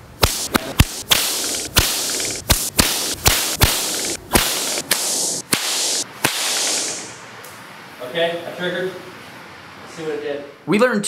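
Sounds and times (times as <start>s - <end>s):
bullwhip cracks: 0.2s - 7.2s
hissing rush: 0.2s - 7.3s.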